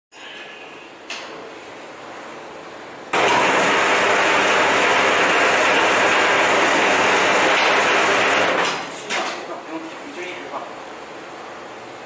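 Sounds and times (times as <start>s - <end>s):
wire stripping machine whirring: 3.1s - 9.1s.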